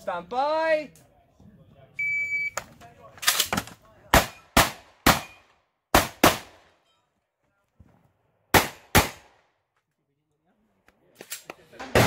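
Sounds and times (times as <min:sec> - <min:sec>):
shotgun shots echoing: 0:04.1 - 0:06.7, 0:08.5 - 0:09.4.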